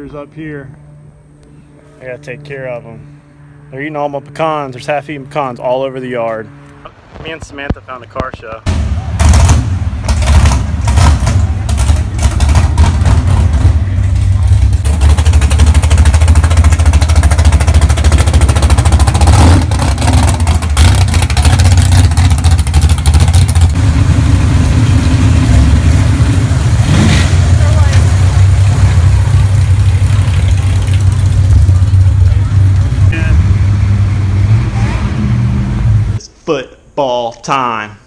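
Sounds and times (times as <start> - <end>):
car engine idling: 8.7 - 36.2.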